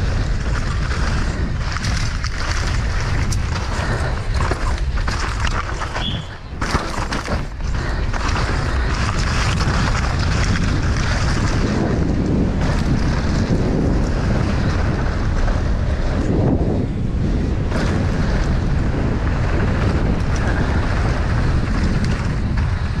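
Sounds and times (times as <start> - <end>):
bike tyre roar on dirt: 0.0 - 23.0
wind buffeting microphone: 0.0 - 23.0.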